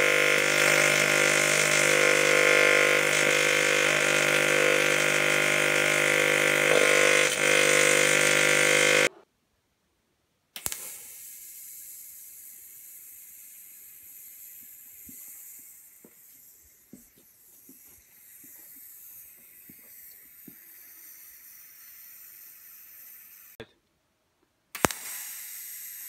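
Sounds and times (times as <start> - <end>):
welding arc hissing: 0.0 - 9.1.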